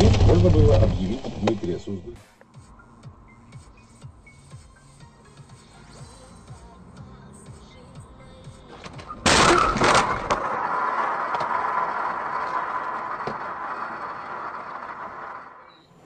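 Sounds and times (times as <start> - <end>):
car crash with breaking: 0.0 - 1.8, 8.8 - 15.6.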